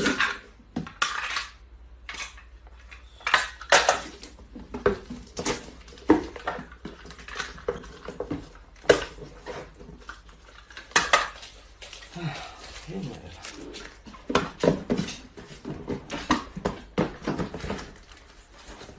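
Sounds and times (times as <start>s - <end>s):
cardboard boxes knocking: 14.1s - 18.9s.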